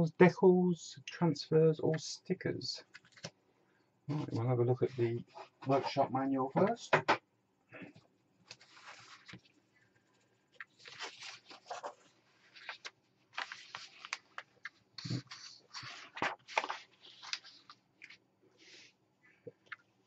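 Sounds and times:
paper pages rustling: 2.9 - 3.4, 8.5 - 18.2.

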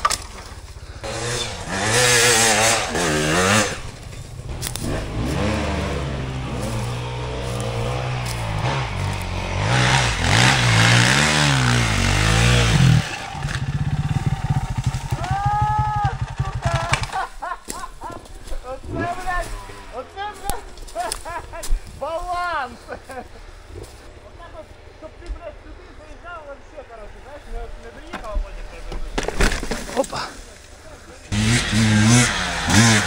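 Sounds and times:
dirt bike engine revving: 1.0 - 17.2, 18.9 - 20.1, 31.3 - 33.0.

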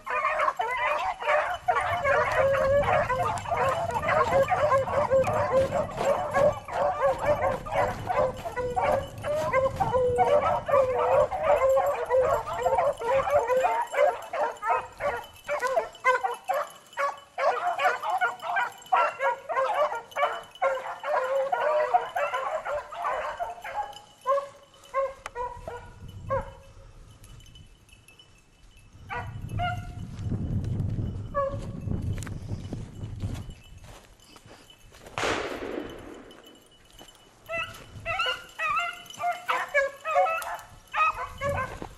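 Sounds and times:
dogs baying: 0.0 - 26.7, 35.9 - 41.9.

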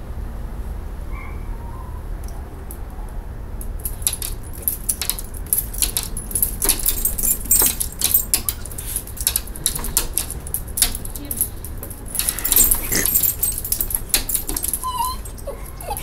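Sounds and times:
jingling: 3.6 - 16.0
dog claws striking glass door: 3.8 - 11.2, 11.8 - 16.0.

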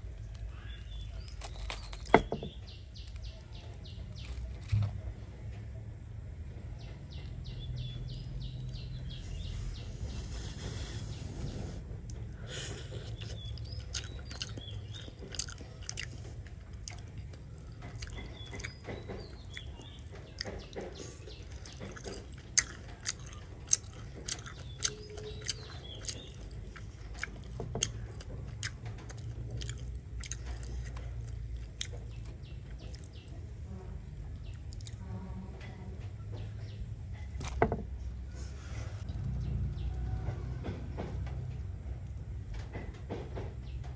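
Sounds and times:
crunching crisp grilled fish: 0.0 - 5.7, 7.2 - 35.2, 37.1 - 41.2
low steady rumble: 0.0 - 43.9.

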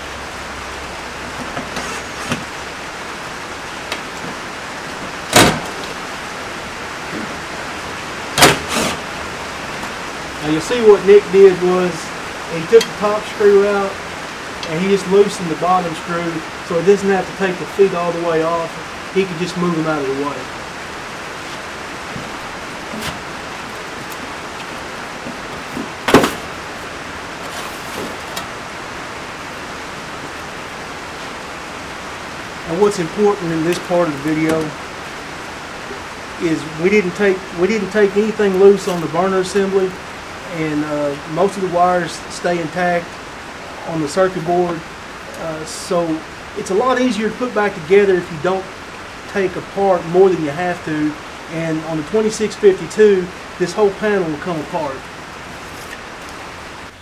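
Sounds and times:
steady hiss: 0.0 - 57.0
sheet metal panel clattering: 5.3 - 6.0.

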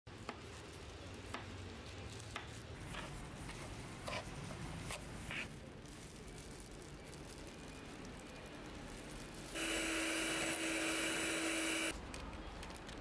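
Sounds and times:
wooden spatula scraping a pan: 2.0 - 5.5.

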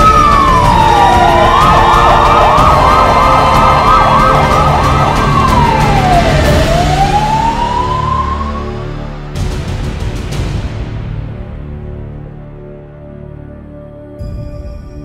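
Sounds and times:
electronic siren wailing and yelping: 0.0 - 8.7.

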